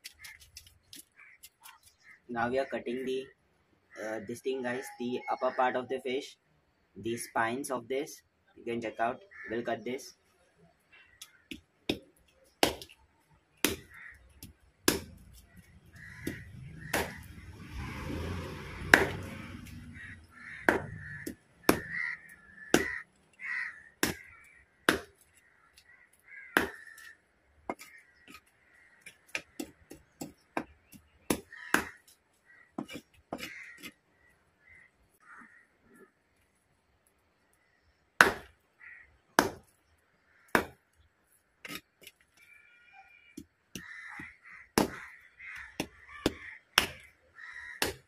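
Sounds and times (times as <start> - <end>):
crows cawing: 0.1 - 2.8, 9.2 - 9.6, 13.7 - 17.6, 18.9 - 36.1, 37.6 - 39.2, 40.2 - 40.8, 41.7 - 48.0
cleaver chopping onto a block: 11.5 - 13.0, 13.6 - 15.2, 16.2 - 17.3, 18.9 - 19.3, 20.6 - 22.0, 22.7 - 23.0, 24.0 - 24.3, 24.9 - 25.2, 26.6 - 26.9, 29.3 - 32.0, 38.2 - 38.5, 39.4 - 39.7, 40.5 - 40.8, 43.4 - 45.1, 45.8 - 47.0, 47.8 - 48.0.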